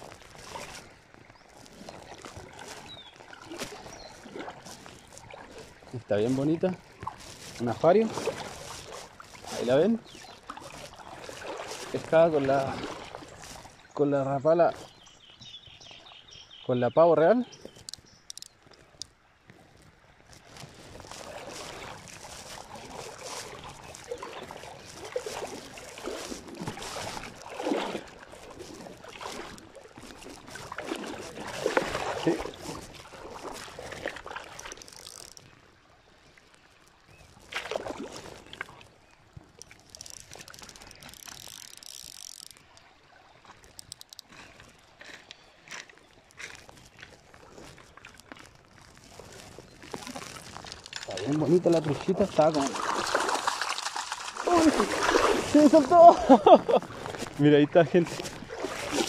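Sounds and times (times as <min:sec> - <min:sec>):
handling rustle: 0:17.5 - 0:35.6, 0:36.5 - 0:59.0
fishing reel winding: 0:17.8 - 0:18.6, 0:34.6 - 0:35.4, 0:39.6 - 0:42.8, 0:43.6 - 0:44.3.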